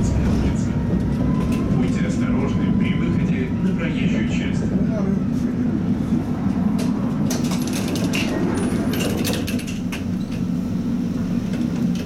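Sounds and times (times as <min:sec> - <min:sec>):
tram rumbling along track: 0:00.0 - 0:12.0
rattling and clicking: 0:06.8 - 0:10.4.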